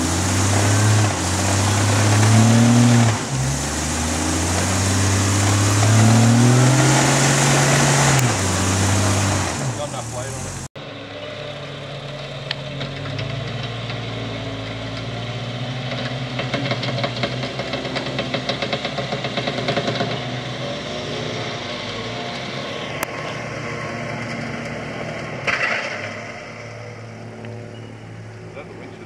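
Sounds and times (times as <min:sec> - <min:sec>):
car engine running: 0:00.0 - 0:10.8.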